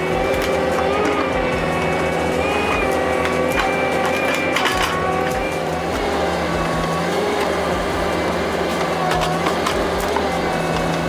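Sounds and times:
diesel engine running: 0.0 - 11.0
wood cracking and splintering: 2.4 - 11.0.

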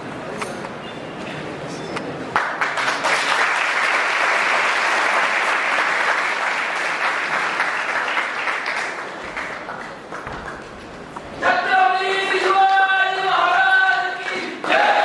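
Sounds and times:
audience applauding: 2.3 - 10.9.

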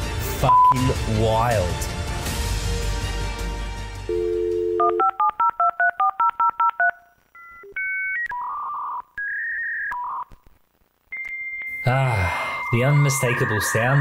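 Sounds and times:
dial tone: 4.1 - 10.2
modem connection tones: 4.1 - 14.0
touch-tone beeps: 11.1 - 14.0.

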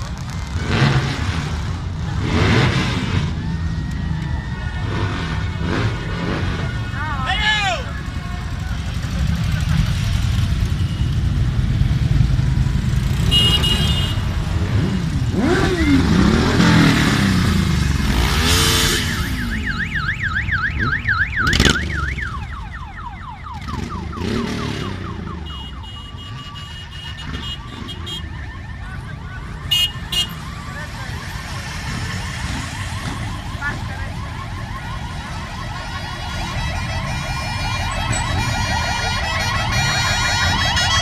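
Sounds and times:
motorcycle engines revving: 0.0 - 41.0
electronic alarm warble: 18.4 - 41.0.

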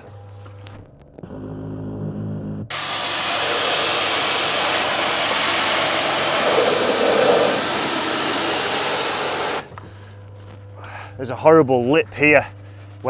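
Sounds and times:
machine motor humming: 0.0 - 10.4
high-pressure water jet hissing: 2.7 - 9.7.

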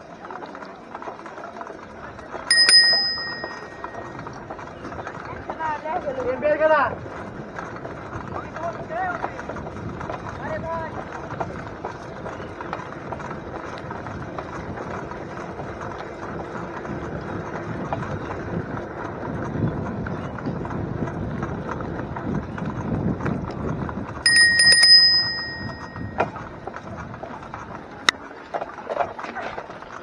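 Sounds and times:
bicycle bell ringing: 2.5 - 4.2, 24.3 - 26.3.

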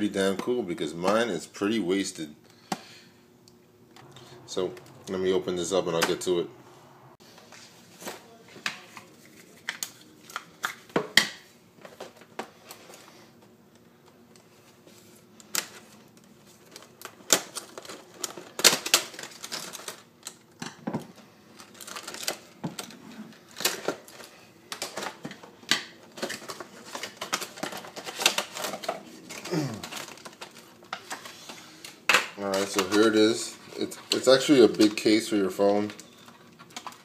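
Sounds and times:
plastic packaging clicks and crinkles: 8.0 - 12.8, 13.7 - 37.0.

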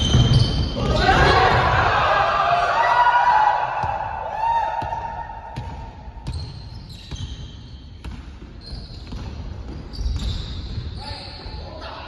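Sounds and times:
sneaker squeaks: 0.0 - 1.3, 5.6 - 12.0
basketball bouncing on wooden floor: 5.6 - 10.9.

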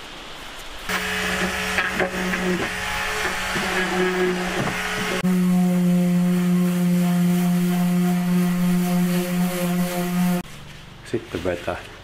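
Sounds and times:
electric sander whining: 0.9 - 10.4.

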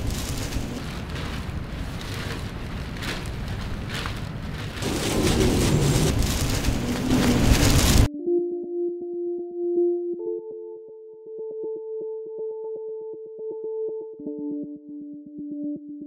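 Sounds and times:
dense crackling noise: 0.0 - 8.1.

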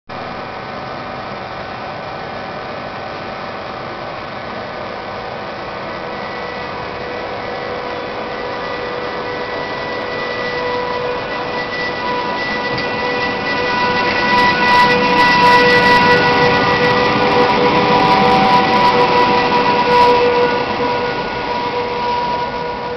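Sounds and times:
electric locomotive humming: 0.1 - 22.9
locomotive whine: 0.1 - 22.9.

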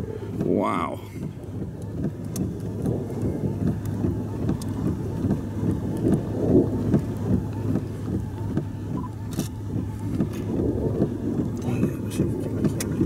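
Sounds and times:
vehicle low hum: 0.0 - 13.0
wind buffeting microphone: 0.0 - 13.0.

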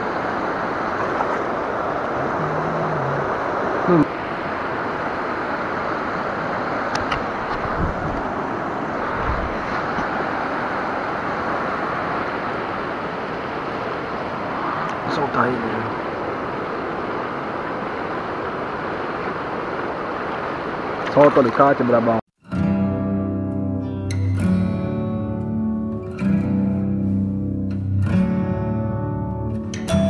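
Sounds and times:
river water rushing over rocks: 0.0 - 22.0.

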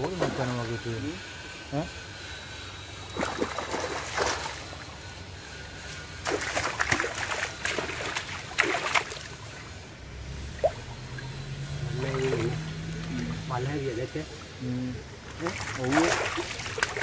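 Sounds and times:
flowing water: 2.4 - 17.0
fish splashing in water: 3.0 - 5.1, 5.8 - 14.5, 15.2 - 17.0.

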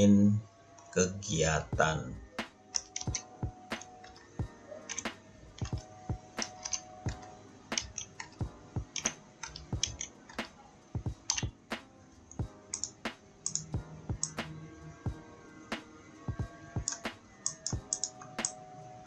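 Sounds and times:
keyboard keystroke clicks: 2.7 - 10.5, 11.2 - 11.6, 12.7 - 14.5, 16.8 - 18.6.

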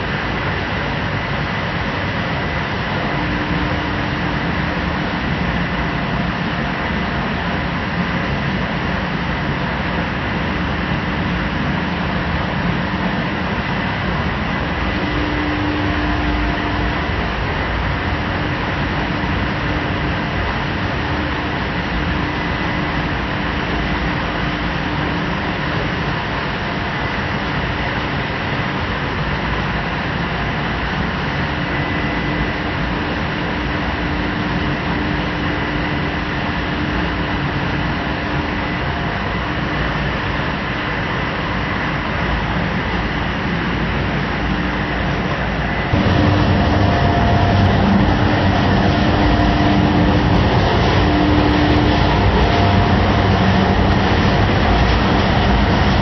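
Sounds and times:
piston air compressor running: 46.0 - 56.0.

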